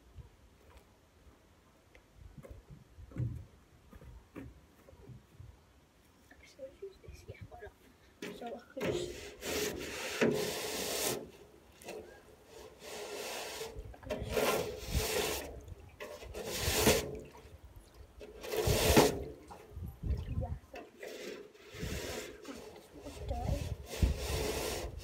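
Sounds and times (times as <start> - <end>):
brush scrubbing metal wheelbarrow: 8.2 - 17.6, 18.2 - 19.8, 20.7 - 25.0.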